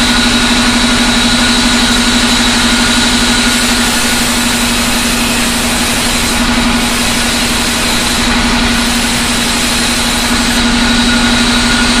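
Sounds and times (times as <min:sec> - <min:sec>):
band saw humming: 0:00.0 - 0:12.0.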